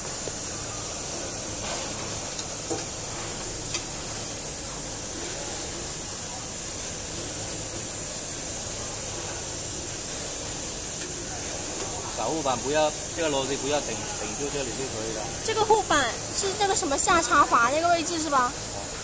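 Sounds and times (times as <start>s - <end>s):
compressed air hissing: 0.0s - 18.7s.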